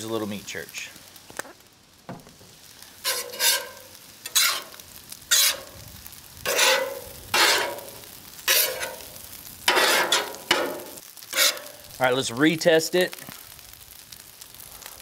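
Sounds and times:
frying hiss: 0:00.0 - 0:15.0
metal spatula scraping griddle: 0:02.6 - 0:12.0.

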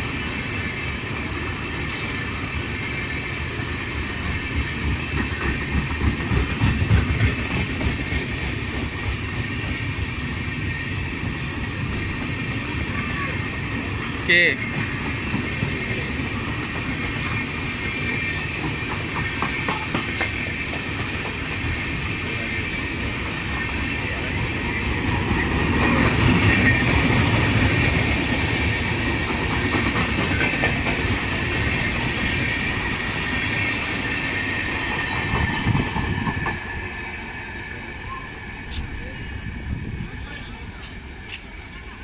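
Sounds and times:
train wheels clattering: 0:04.0 - 0:12.9, 0:13.6 - 0:37.4.

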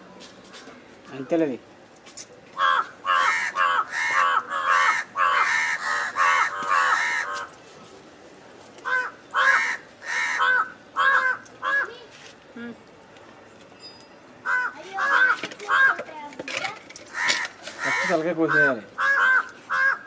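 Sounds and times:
crows cawing: 0:02.6 - 0:07.5, 0:08.8 - 0:12.0, 0:14.4 - 0:16.1, 0:17.1 - 0:20.0.

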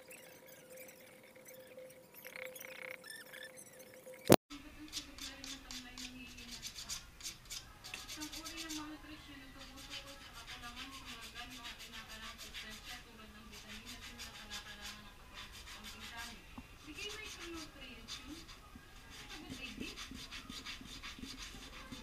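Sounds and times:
knife scraping wood: 0:04.9 - 0:08.8, 0:17.0 - 0:22.0.

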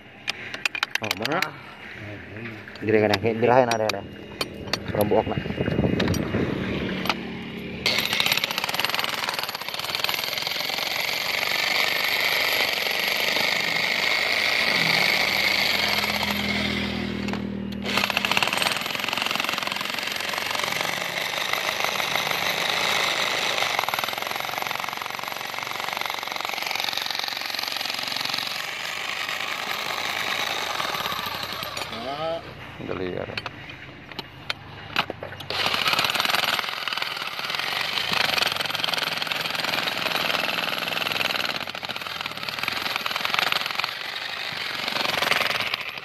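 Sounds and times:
jackhammer hammering rocky ground: 0:00.2 - 0:02.0, 0:02.8 - 0:32.4, 0:33.3 - 0:46.0.

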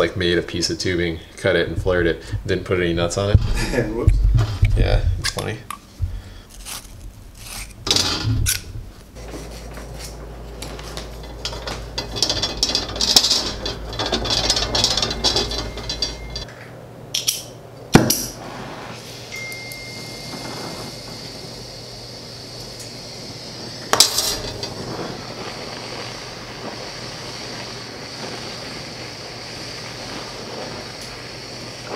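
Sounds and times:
torch flame hissing: 0:00.0 - 0:16.5, 0:17.8 - 0:31.9
metal tubing clinking: 0:09.8 - 0:16.5
torch lighting pop: 0:17.9 - 0:18.6, 0:23.8 - 0:31.9.

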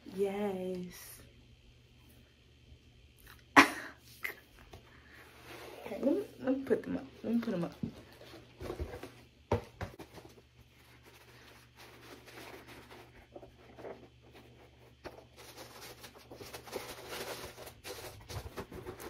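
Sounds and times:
rustling and scraping: 0:05.1 - 0:06.4, 0:07.2 - 0:19.0.

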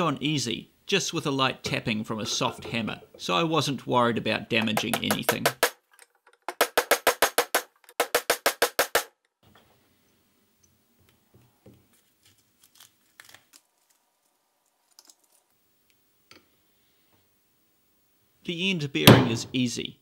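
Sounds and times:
hammer tapping on steel: 0:04.6 - 0:05.7.

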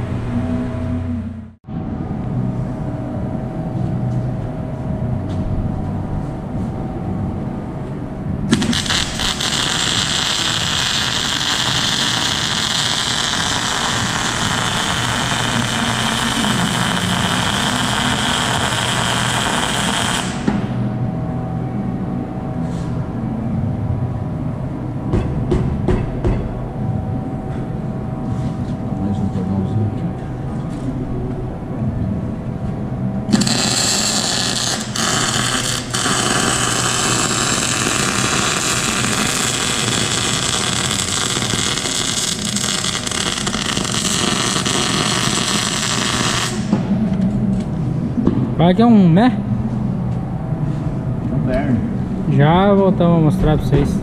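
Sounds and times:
low hum: 0:00.0 - 0:54.0
welding arc crackling hiss: 0:08.5 - 0:20.8, 0:33.3 - 0:46.8.

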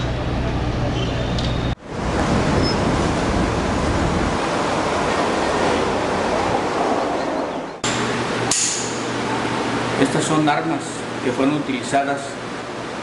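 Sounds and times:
waves rushing: 0:01.8 - 0:07.6.

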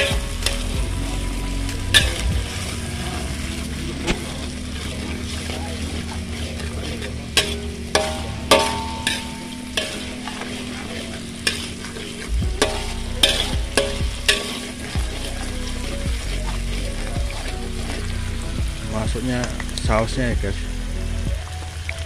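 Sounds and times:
chicken sizzling in oil: 0:00.0 - 0:20.3
spatula clanking on wok: 0:05.8 - 0:18.1.

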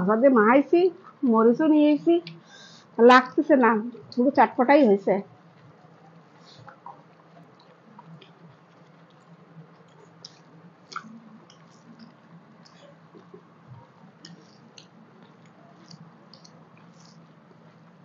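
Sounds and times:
low steady hum: 0:00.0 - 0:18.0
people chewing: 0:05.5 - 0:18.0
fingers squishing rice: 0:06.2 - 0:18.0.

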